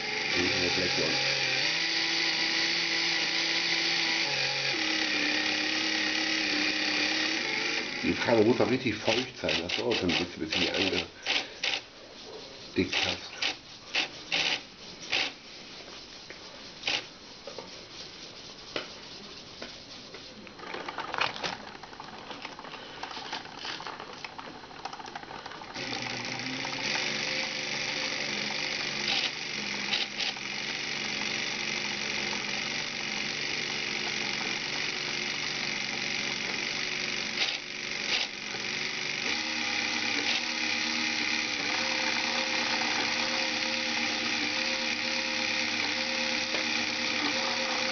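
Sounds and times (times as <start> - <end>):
toy motor and gears whirring: 0.0 - 15.4, 16.7 - 17.1, 20.5 - 47.9.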